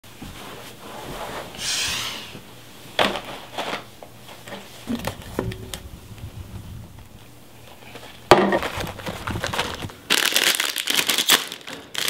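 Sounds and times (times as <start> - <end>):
chip bag rustling: 7.6 - 12.0
snack can clicks and crinkles: 7.9 - 12.0.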